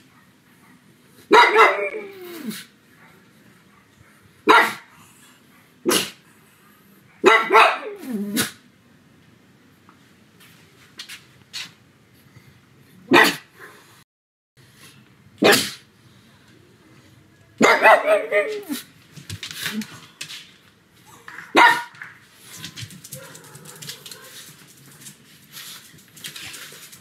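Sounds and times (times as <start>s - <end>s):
dog barking: 1.3s - 2.1s, 4.4s - 4.9s, 7.2s - 8.5s, 13.1s - 13.5s, 15.4s - 15.8s, 17.6s - 18.8s, 21.5s - 22.0s, 23.1s - 24.5s.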